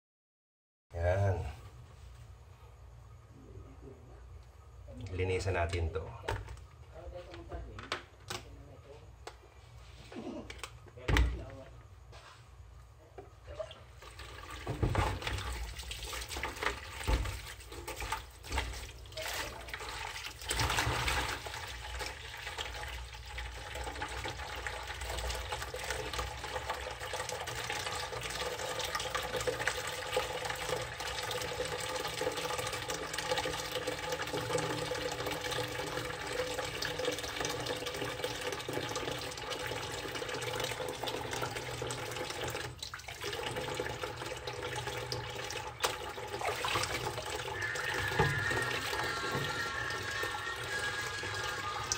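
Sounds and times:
tap water pouring into basin: 0:13.6 - 0:51.9.

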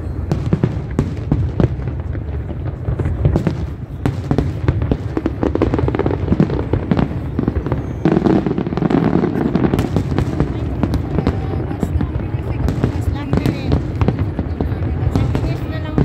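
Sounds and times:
fireworks bangs and crackles: 0:00.0 - 0:16.0.

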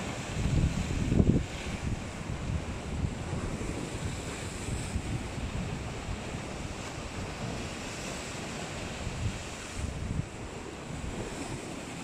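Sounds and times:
surf breaking over rocks: 0:00.0 - 0:12.0
wind buffeting microphone: 0:00.0 - 0:12.0.

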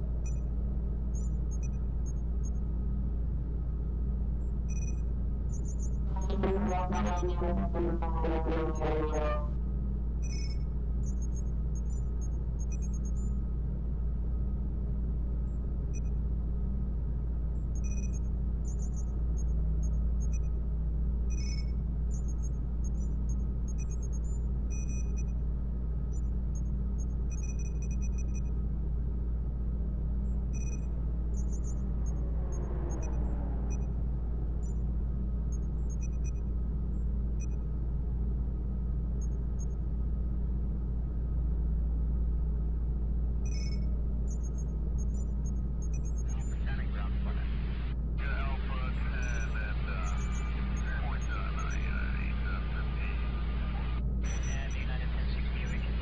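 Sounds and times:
steady low hum: 0:00.0 - 0:56.0
deep drone: 0:06.1 - 0:09.6, 0:29.4 - 0:36.8
downward pitch sweep: 0:06.2 - 0:09.5
faint high tone: 0:06.2 - 0:09.5
short high electronic beeps: 0:06.2 - 0:09.5, 0:54.2 - 0:54.7.

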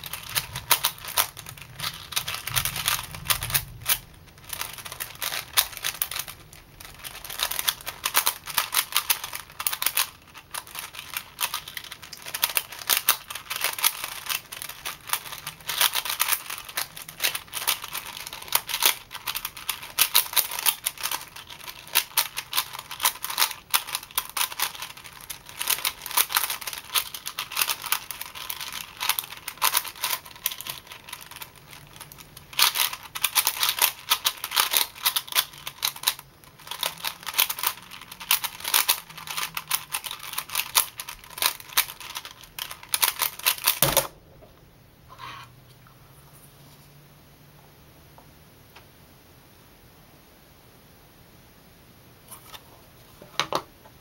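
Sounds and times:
puzzle cube clicking: 0:00.0 - 0:31.5, 0:32.6 - 0:44.0.

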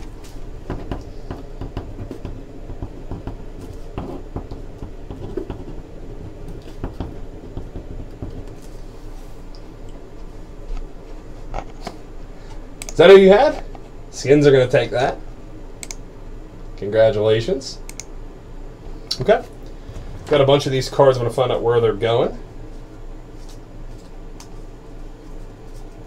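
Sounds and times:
low room hum: 0:00.0 - 0:26.0.

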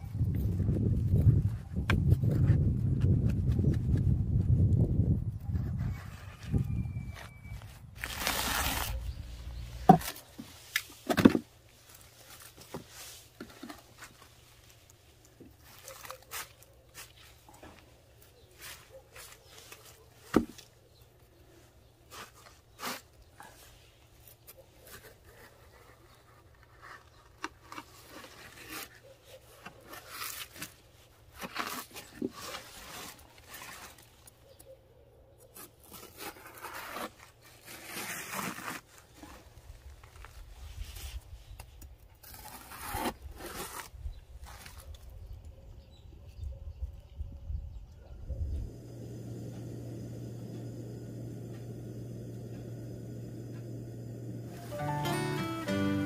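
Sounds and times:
knife cutting frozen cabbage: 0:08.0 - 0:11.4, 0:22.1 - 0:23.6, 0:24.8 - 0:34.2, 0:35.5 - 0:39.5, 0:42.2 - 0:45.0.

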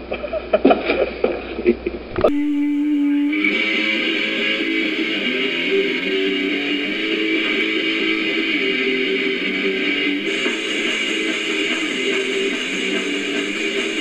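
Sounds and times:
held electric guitar note: 0:02.2 - 0:14.0
punk band playing live: 0:02.3 - 0:14.0.

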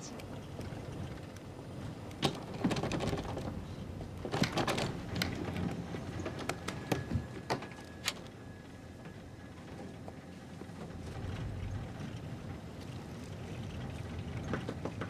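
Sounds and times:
folding door clicks and knocks: 0:04.2 - 0:05.6.

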